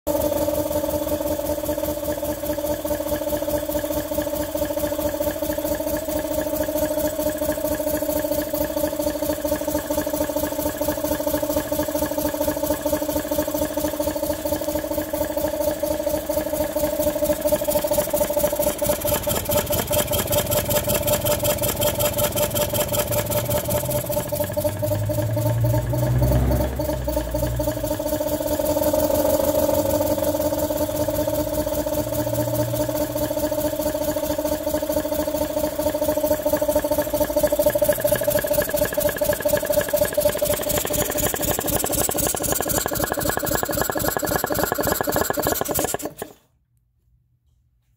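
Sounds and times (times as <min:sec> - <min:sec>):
car engine running with whine: 0:17.7 - 0:33.8, 0:35.9 - 0:46.3.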